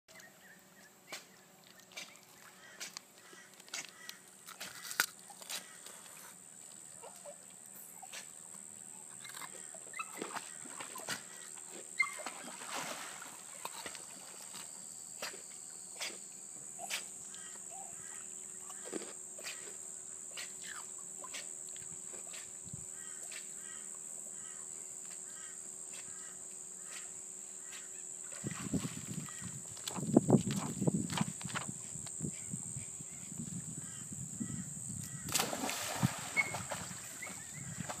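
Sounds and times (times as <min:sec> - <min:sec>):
dog splashing in water: 0:12.1 - 0:14.4, 0:35.3 - 0:38.0.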